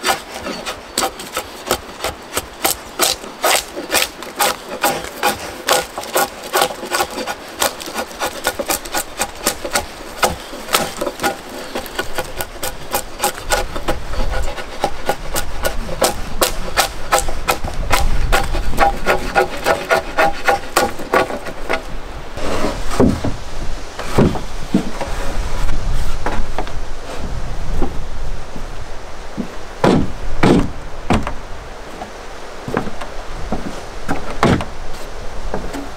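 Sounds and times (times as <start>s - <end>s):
drawknife shaving wood: 0.0s - 22.9s.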